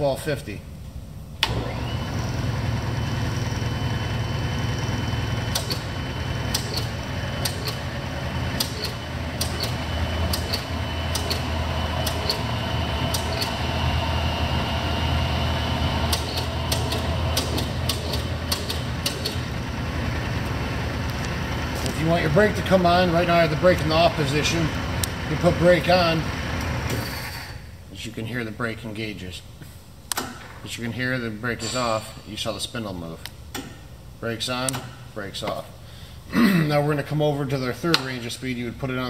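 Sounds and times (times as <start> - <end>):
lathe motor humming: 1.4 - 26.9
thin steady whine: 1.5 - 18.5, 19.4 - 27.1.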